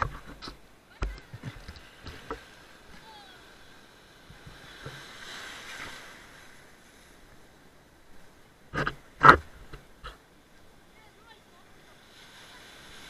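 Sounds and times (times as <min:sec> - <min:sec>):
sea wave washing in: 0:01.5 - 0:09.3.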